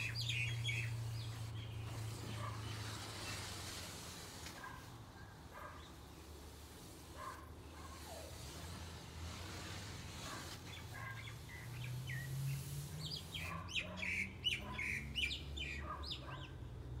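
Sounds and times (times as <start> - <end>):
birds chirping: 0.0 - 3.5, 10.7 - 16.7.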